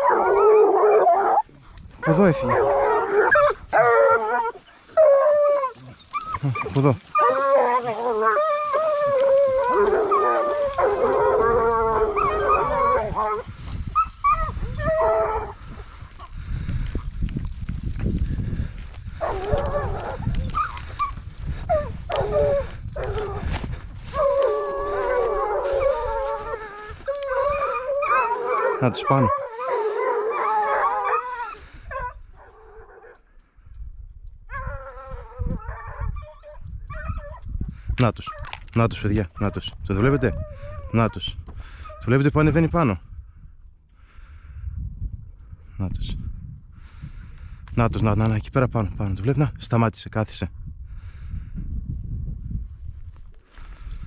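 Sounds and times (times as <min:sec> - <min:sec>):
hounds baying and howling: 0:00.0 - 0:16.4, 0:18.6 - 0:33.4, 0:34.4 - 0:38.6, 0:39.3 - 0:42.2
low microphone rumble: 0:01.2 - 0:28.5.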